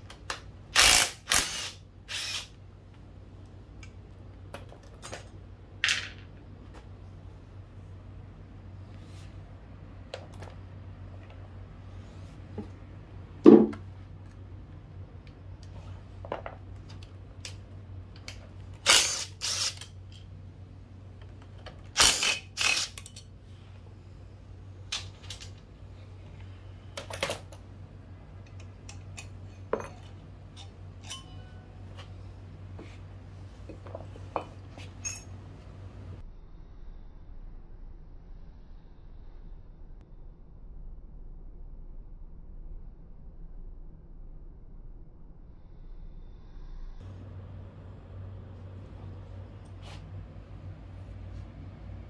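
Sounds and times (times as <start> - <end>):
steady low hum: 0.0 - 52.0
metal tools clinking: 29.0 - 31.8, 34.8 - 35.4.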